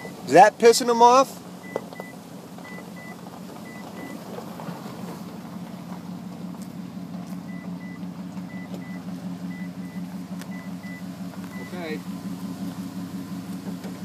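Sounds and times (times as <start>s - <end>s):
engine idling: 0.0s - 14.0s
warning chime beeping: 7.5s - 11.9s.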